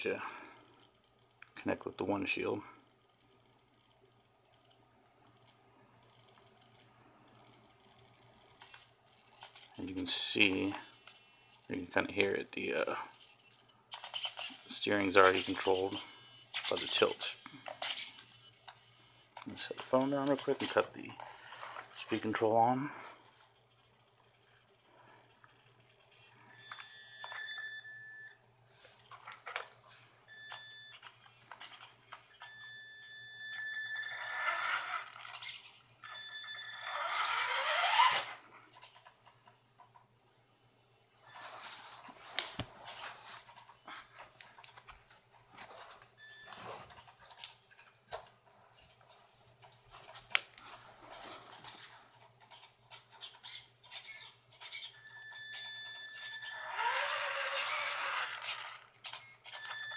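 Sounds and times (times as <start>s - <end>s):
toy truck motor and gear noise: 13.2s - 18.3s, 33.5s - 39.4s, 51.1s - 59.9s
steering servo clicks and squeaks: 52.5s - 59.9s.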